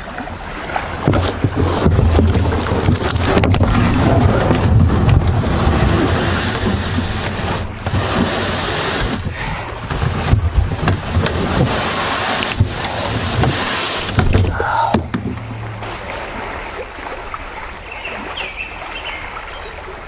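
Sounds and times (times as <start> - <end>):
paddle splashing water: 0.0 - 20.0
wind on microphone: 0.6 - 17.7.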